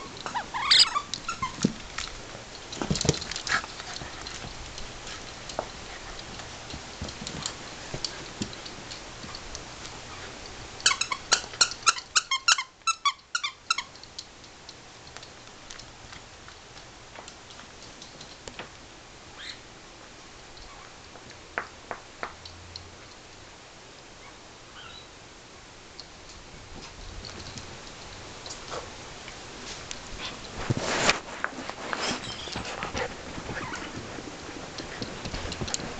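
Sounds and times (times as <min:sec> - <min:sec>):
dogs scuffling: 0:00.0 - 0:12.0, 0:26.7 - 0:35.9.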